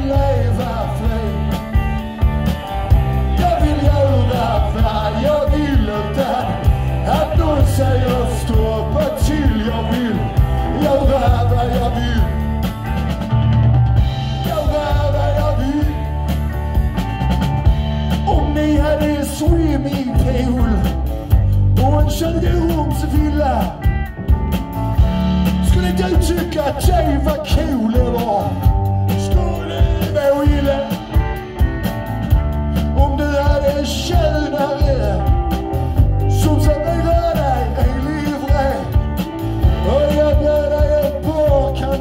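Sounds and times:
man singing into a microphone: 0.0 - 1.7, 3.2 - 12.6, 14.3 - 16.2, 18.2 - 23.9, 25.6 - 31.4, 32.8 - 35.4, 36.2 - 42.0
drums: 0.0 - 42.0
electric guitars: 0.0 - 42.0.

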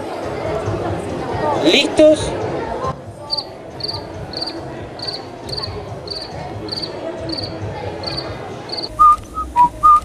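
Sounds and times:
cricket chirping: 3.3 - 8.9.

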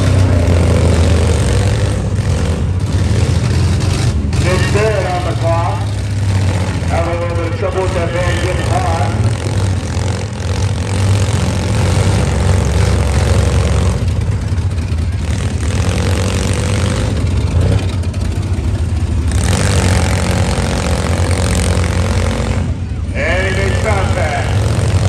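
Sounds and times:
vehicle engines revving: 0.0 - 25.0.

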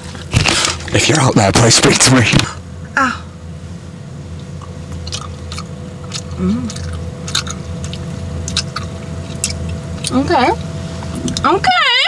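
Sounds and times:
steady low hum: 0.0 - 12.0
person chewing food: 4.4 - 10.2
wet mouth clicks: 4.6 - 10.2
person humming mm: 6.4 - 6.8.

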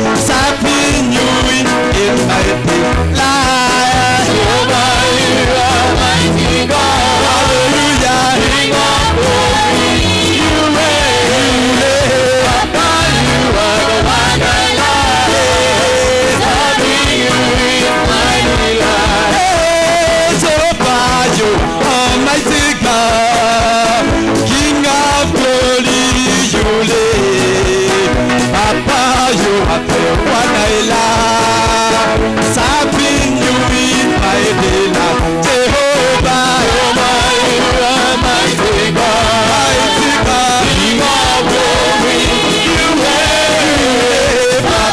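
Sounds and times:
amplified instruments: 0.0 - 44.9
bass line: 0.0 - 44.9
singers on microphones: 0.0 - 44.9.

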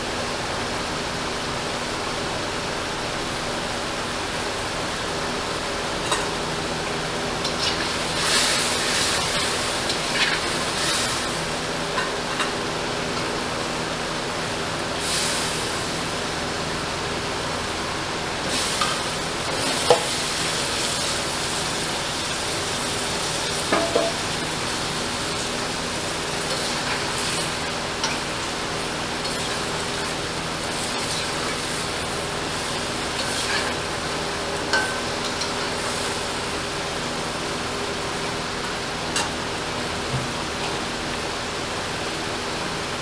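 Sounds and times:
vegetables sizzling in hot pan: 5.9 - 42.5.

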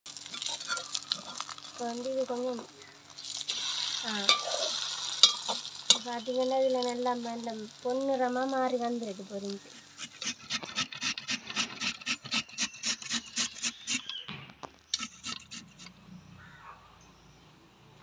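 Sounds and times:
potato grating on metal grater: 9.7 - 14.2, 15.0 - 15.9.

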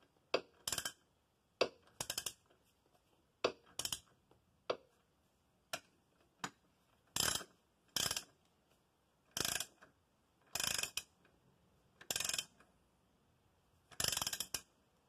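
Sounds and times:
hand ratchet wrench ratcheting: 0.4 - 1.0, 1.6 - 2.5, 3.5 - 4.1, 7.1 - 8.4, 9.3 - 9.9, 10.5 - 11.2, 12.0 - 12.6, 13.9 - 14.7.

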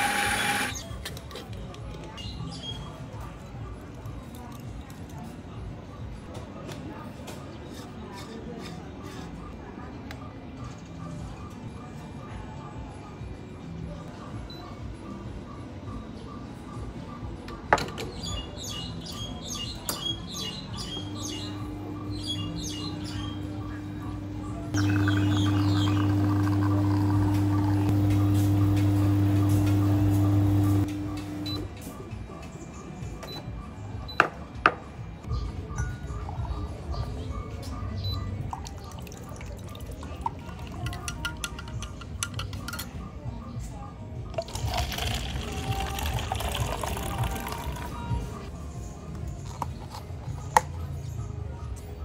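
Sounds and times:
espresso pump humming: 0.0 - 0.7, 24.2 - 31.4
small birds chirping: 18.1 - 30.9
liquid trickling into glass: 24.8 - 27.3, 38.5 - 41.5, 44.4 - 48.0.

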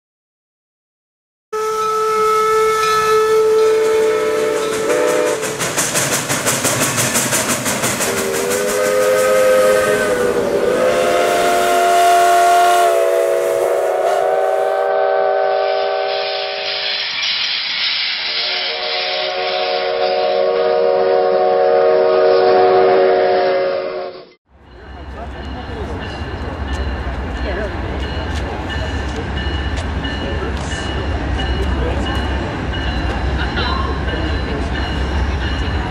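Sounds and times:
steam locomotive whistle chords: 1.6 - 5.7, 8.0 - 17.1, 18.2 - 24.4
rhythmic chuffing: 4.4 - 11.5
hiss of escaping steam: 16.1 - 19.6.

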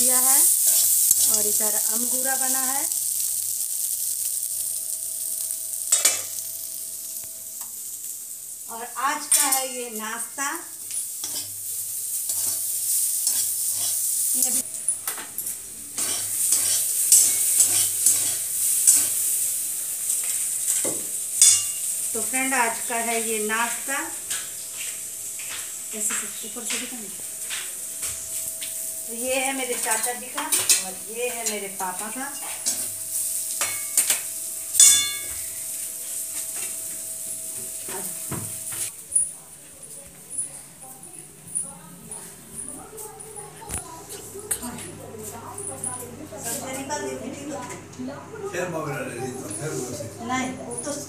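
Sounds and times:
pan sizzling: 0.0 - 47.7
steel ladle scraping in wok: 12.2 - 14.1, 16.0 - 19.3
loud ringing metal clang: 34.8 - 35.6.

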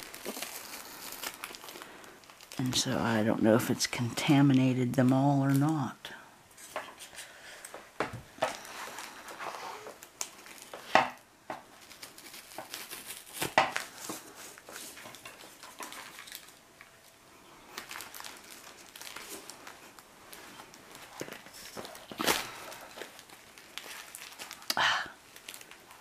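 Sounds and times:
packing foam rustling and crinkling: 0.0 - 26.0.

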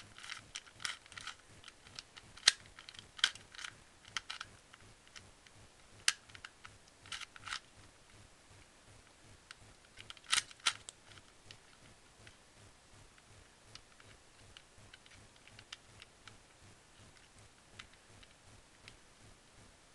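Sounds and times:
plastic puzzle clicking: 0.0 - 5.2, 6.0 - 7.7, 9.5 - 12.4, 13.7 - 16.4.

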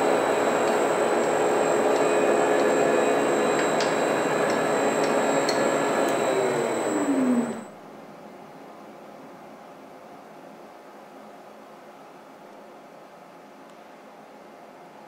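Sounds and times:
lathe running: 0.0 - 7.7.

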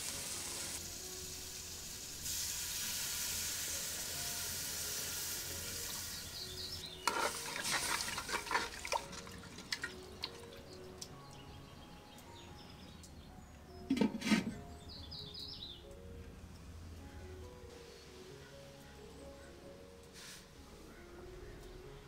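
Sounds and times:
water pouring into a clay pot: 7.0 - 10.7
wooden spoon stirring in clay pot: 7.1 - 10.0.

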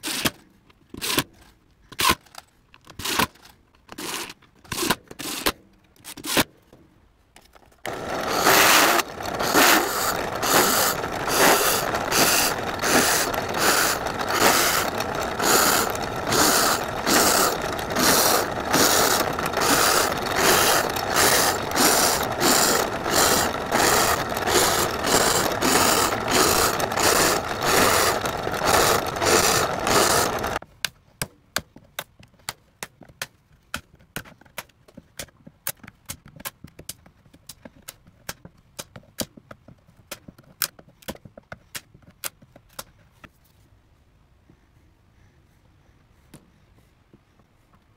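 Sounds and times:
drill press cutting into wood: 7.9 - 30.6.

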